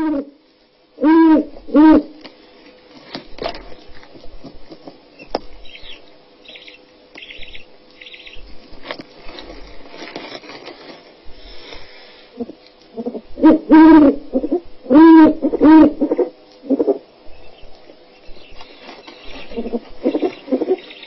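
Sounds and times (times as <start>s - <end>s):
owl chicks chittering: 5.1s - 8.6s, 15.4s - 21.0s
rustling in dry leaf litter: 8.4s - 12.2s, 18.3s - 20.9s.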